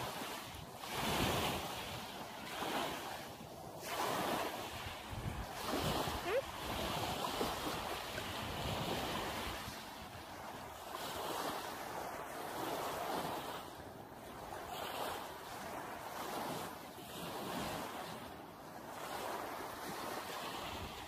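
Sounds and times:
wind on microphone: 0:00.0 - 0:11.6
small waves washing on sand: 0:00.0 - 0:21.0.

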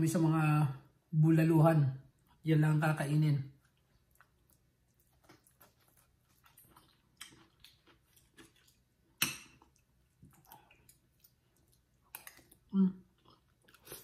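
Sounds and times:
quiet chewing: 0:03.5 - 0:14.0.

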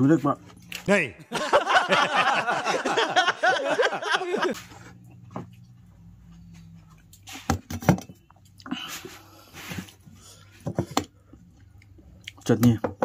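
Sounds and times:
low electrical hum: 0:00.0 - 0:12.8
person chewing noodles: 0:08.4 - 0:10.5, 0:11.1 - 0:12.4
mouth clicks and smacks: 0:11.6 - 0:12.7.

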